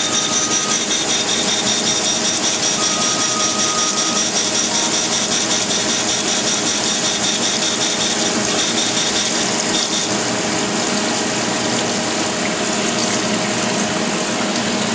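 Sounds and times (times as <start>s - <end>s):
grinder wheel grinding steel: 0.0s - 10.1s
coolant splashing: 0.1s - 14.9s.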